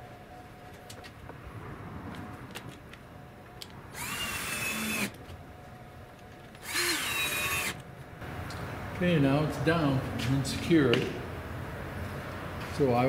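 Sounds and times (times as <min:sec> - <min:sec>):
cordless drill driving screws: 0:04.0 - 0:05.2, 0:06.6 - 0:07.8.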